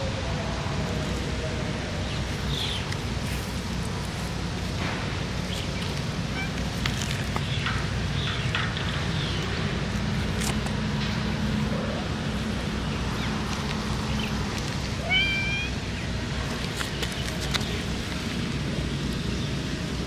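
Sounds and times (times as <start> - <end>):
steady low rumble: 0.0 - 20.0
cat meowing: 6.3 - 6.7, 15.0 - 15.8.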